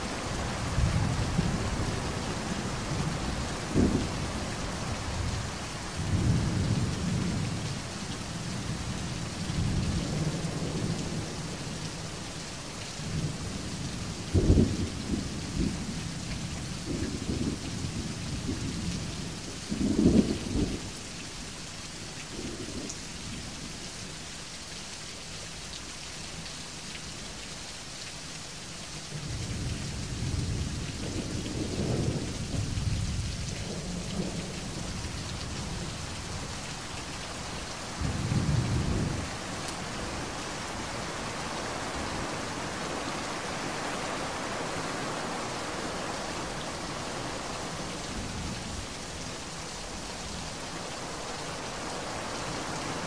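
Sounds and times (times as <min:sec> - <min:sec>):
steady rain: 0:00.0 - 0:53.0
rolling thunder: 0:00.8 - 0:04.5.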